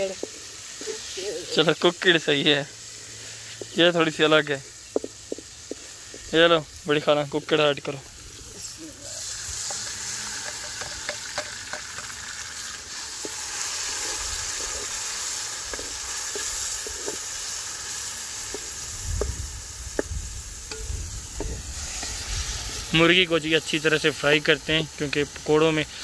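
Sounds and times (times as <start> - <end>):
chicken sizzling in hot oil: 0.0 - 26.0
knife scraping and tapping pot: 9.6 - 12.2.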